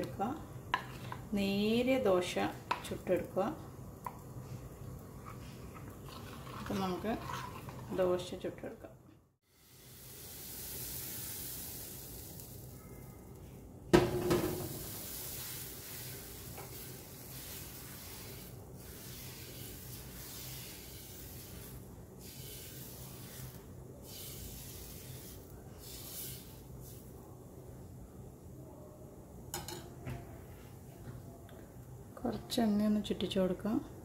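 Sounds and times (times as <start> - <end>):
ladle rubbing over pan: 5.2 - 8.2, 14.2 - 27.1
batter sizzling on a hot pan: 9.4 - 27.3.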